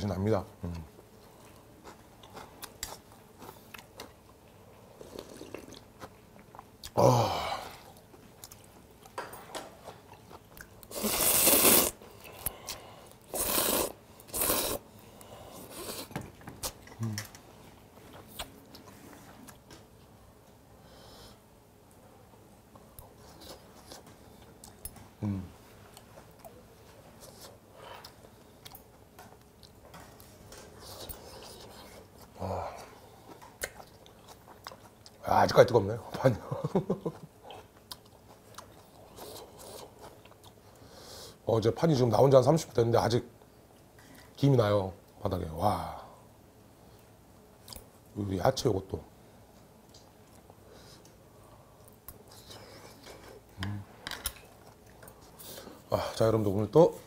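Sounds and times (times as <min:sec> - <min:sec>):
chewing: 0:01.2 - 0:07.0, 0:07.8 - 0:17.4, 0:27.2 - 0:35.2, 0:37.0 - 0:40.8, 0:51.8 - 0:55.8
noodle slurps: 0:10.9 - 0:12.0, 0:13.3 - 0:14.8.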